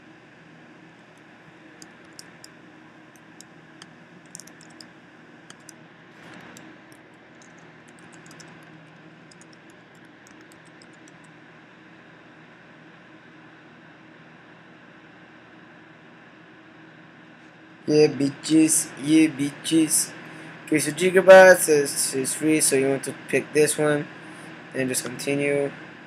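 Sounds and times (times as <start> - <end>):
steady low hum: 0.0 - 26.0
keyboard typing clicks: 1.8 - 2.5, 3.2 - 4.9, 5.5 - 6.7, 7.4 - 11.3.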